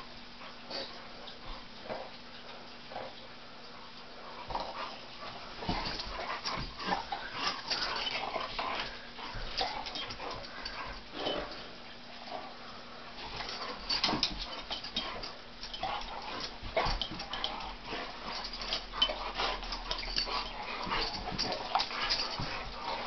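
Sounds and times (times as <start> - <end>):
dogs scuffling: 4.4 - 11.8, 13.1 - 23.0.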